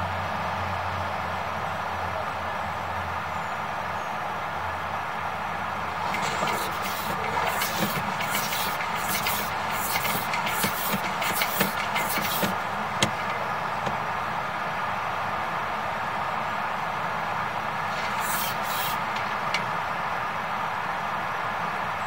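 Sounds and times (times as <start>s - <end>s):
steady background hum: 4.2s - 22.0s
cable scraping and rattling: 5.8s - 14.1s, 17.8s - 19.7s.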